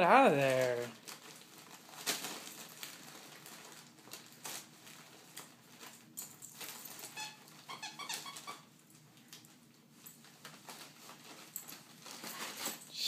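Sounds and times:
paper crackling: 0.3s - 5.9s
dog chewing paper: 0.4s - 8.7s
squeaky toy squeaking: 7.2s - 8.7s.

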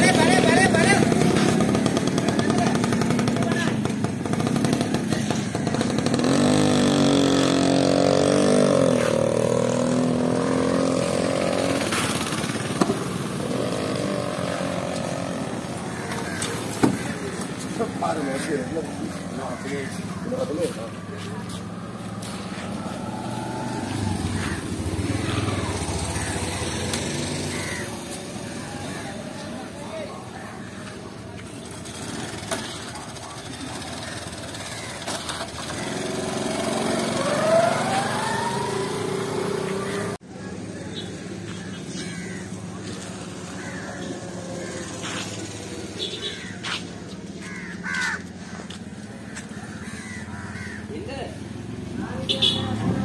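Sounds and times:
crows cawing: 14.4s - 31.2s, 33.8s - 36.5s, 39.8s - 51.4s.

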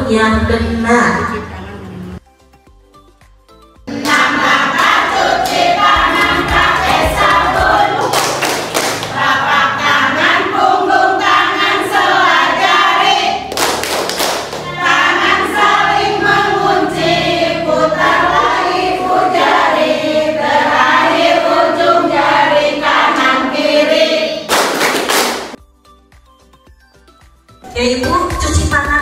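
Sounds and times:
group of voices singing: 3.9s - 13.6s, 14.6s - 24.5s.

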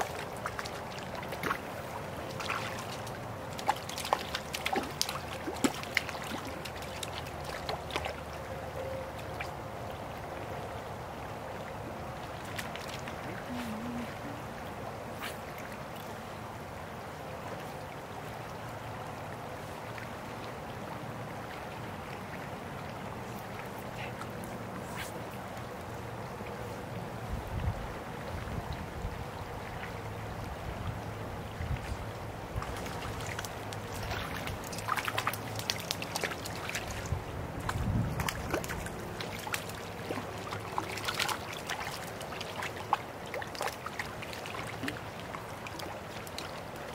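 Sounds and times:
small sharp splashes: 0.0s - 8.3s, 12.3s - 14.0s, 31.8s - 46.9s
creek water rushing: 0.0s - 46.9s.

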